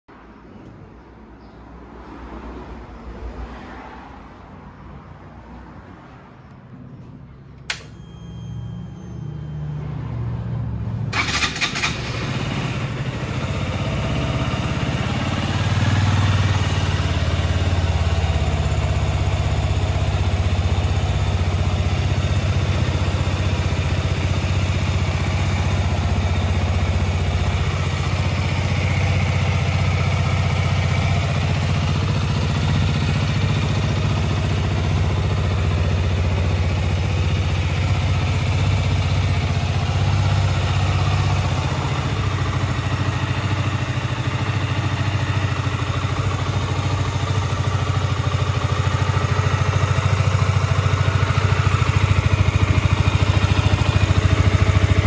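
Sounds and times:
click: 7.6s - 8.1s
motorcycle engine idling: 11.1s - 55.0s.

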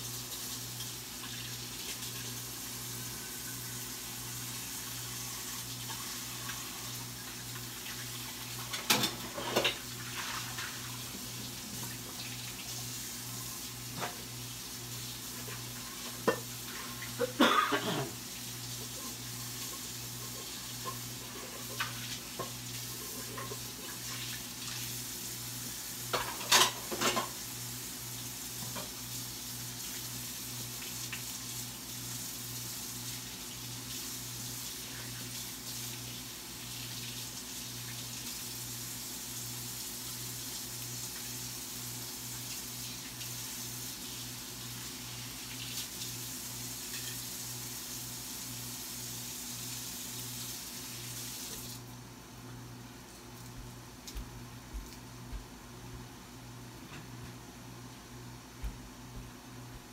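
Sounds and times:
steady hiss: 0.0s - 51.9s
dishes clattering: 26.2s - 27.4s.

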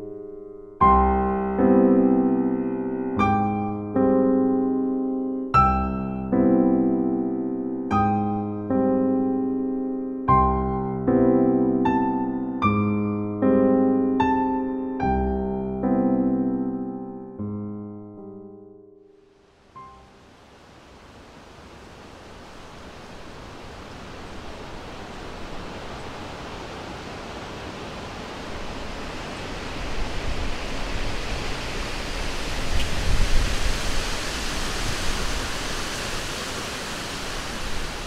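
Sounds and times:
rushing noise: 23.0s - 38.0s.

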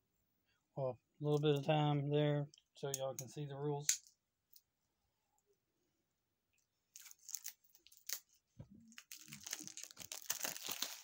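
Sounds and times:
paper rustling and crinkling: 8.9s - 11.0s.

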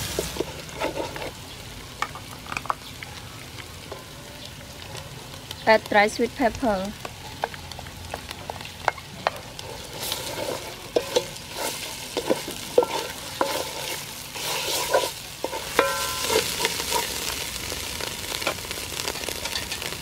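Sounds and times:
paste sizzling in hot oil: 0.0s - 20.0s
wooden spoon scraping pot: 0.1s - 1.4s, 9.2s - 17.2s.

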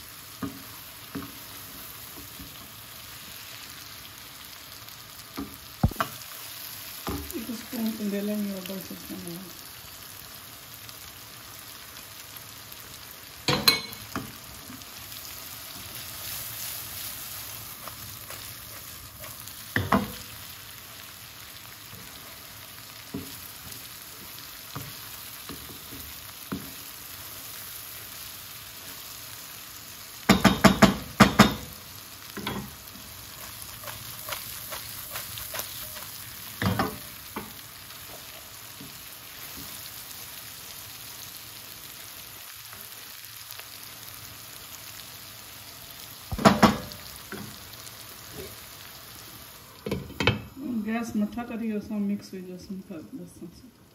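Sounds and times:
vegetables sizzling in a frying pan: 0.0s - 53.9s
wooden spatula knocking on pan: 5.4s - 6.2s, 30.3s - 31.7s, 46.3s - 47.5s.

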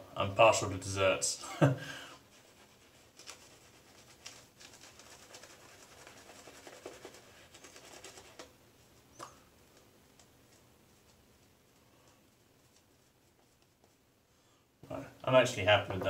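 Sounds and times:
shaving brush scratching lather: 2.3s - 8.5s.

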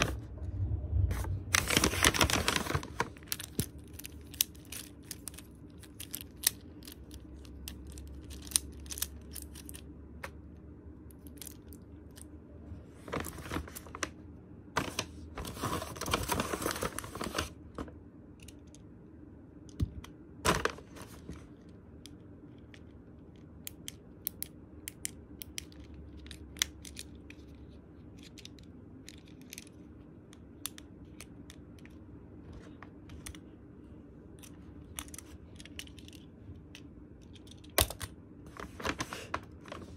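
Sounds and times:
paper rustling: 1.1s - 5.4s, 13.0s - 14.1s, 14.8s - 17.9s, 38.5s - 39.9s.

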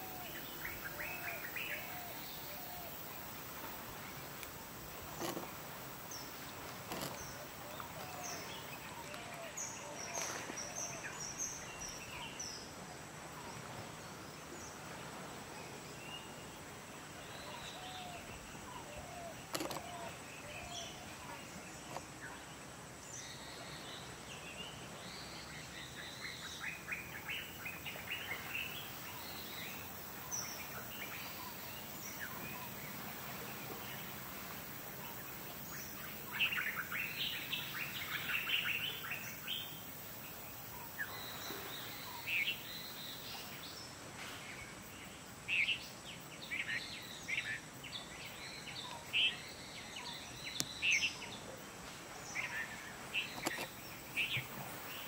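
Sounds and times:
steady outdoor hiss: 0.0s - 55.0s
birds chirping: 46.4s - 55.0s.

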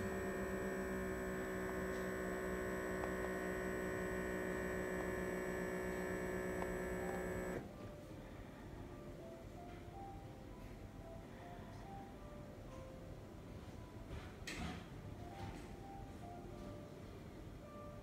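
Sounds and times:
blood pressure monitor pump humming: 0.0s - 7.7s.

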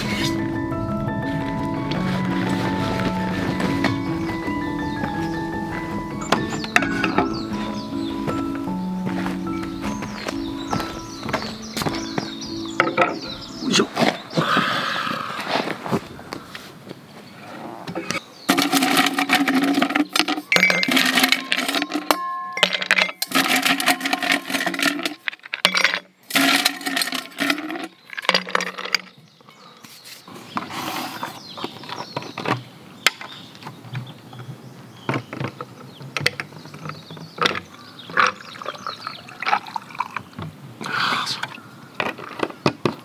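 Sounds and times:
ice cubes clinking in a glass: 18.5s - 29.1s.

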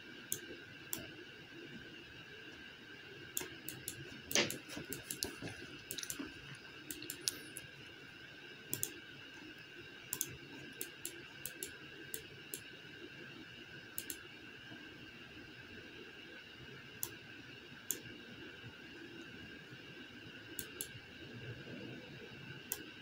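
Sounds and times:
faint steady hum: 0.0s - 23.0s
computer mouse clicking: 0.3s - 1.1s, 3.4s - 7.7s, 8.7s - 9.0s, 10.1s - 12.7s, 13.9s - 14.2s, 20.6s - 21.0s, 22.7s - 22.9s.

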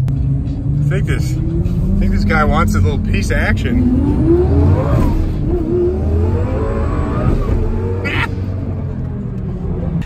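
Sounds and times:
car engine accelerating: 0.0s - 10.0s.

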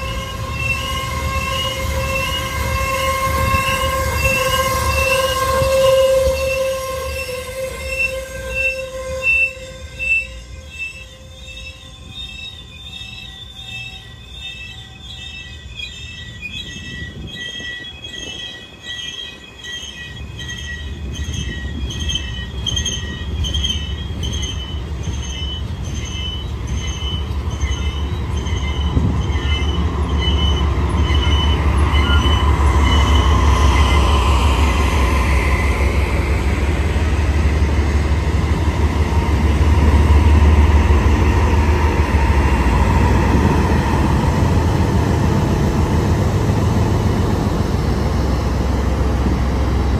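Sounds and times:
diesel freight train rumbling: 0.0s - 49.9s
ringing high tones: 8.0s - 34.1s.

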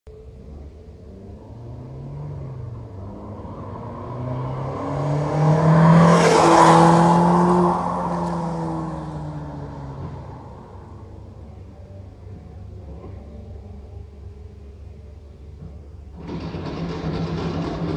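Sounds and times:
car driving past under throttle: 0.3s - 13.6s.

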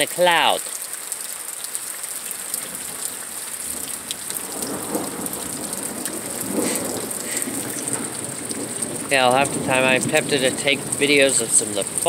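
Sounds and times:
steady rain falling: 0.0s - 12.0s
thunder rumbling: 2.6s - 12.0s.

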